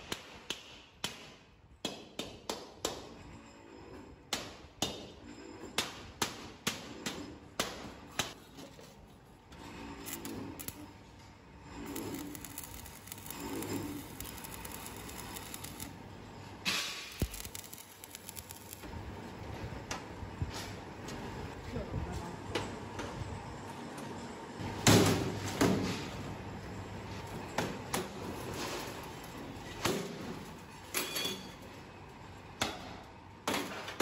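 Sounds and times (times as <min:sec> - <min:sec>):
arc welder hiss and crackle: 0:09.9 - 0:11.1, 0:11.8 - 0:18.9.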